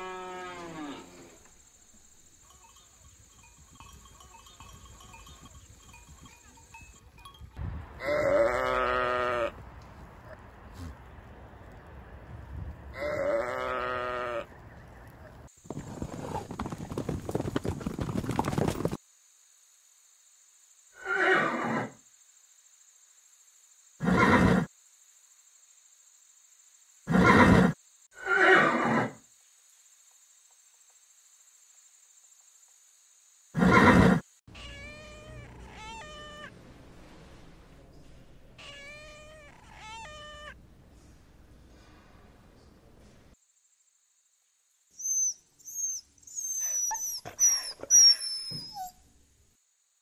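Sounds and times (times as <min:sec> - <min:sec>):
horses calling: 0:02.5 - 0:07.3, 0:15.7 - 0:19.0
kittens mewing: 0:34.6 - 0:36.5.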